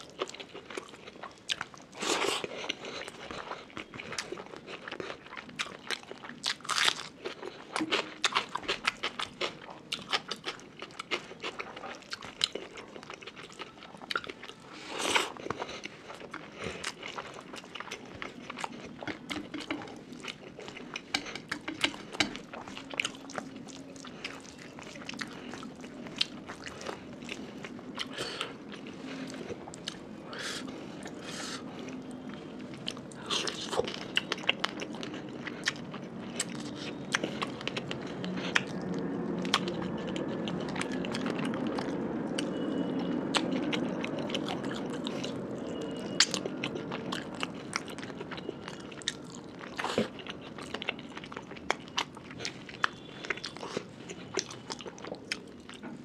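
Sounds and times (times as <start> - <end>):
wet chewing: 0.0 - 42.6, 43.3 - 55.9.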